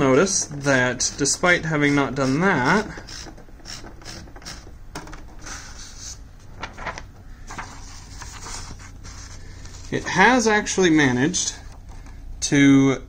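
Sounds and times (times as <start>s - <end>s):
typewriter mechanical clicks: 0.6s - 5.3s
paper swishes: 5.4s - 10.4s.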